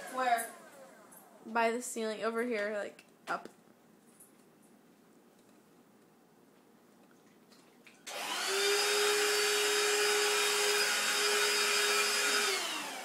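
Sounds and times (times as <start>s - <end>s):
handheld vacuum whine: 0.0s - 1.4s, 8.1s - 13.0s.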